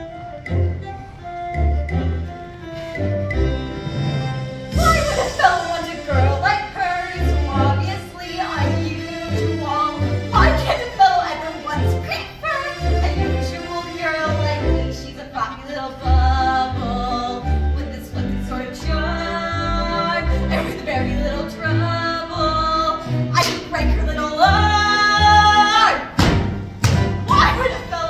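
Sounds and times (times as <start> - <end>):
instrumental backing with bass: 0.0 - 10.8
woman singing: 4.8 - 26.1, 27.2 - 28.0.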